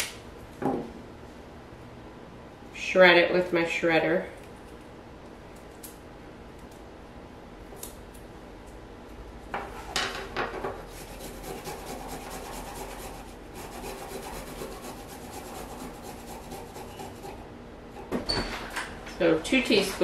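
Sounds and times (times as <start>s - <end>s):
ginger rasping on grater: 10.9s - 17.4s.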